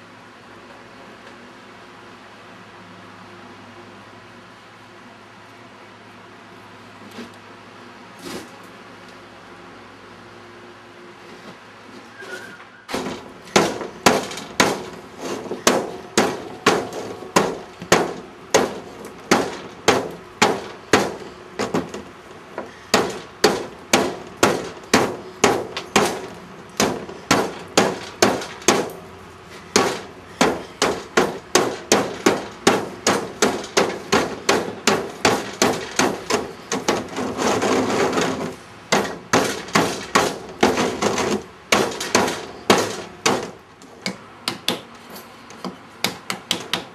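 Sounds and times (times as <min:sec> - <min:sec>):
rough continuous noise: 0:00.0 - 0:46.9
ringing hammer strikes: 0:13.0 - 0:22.0.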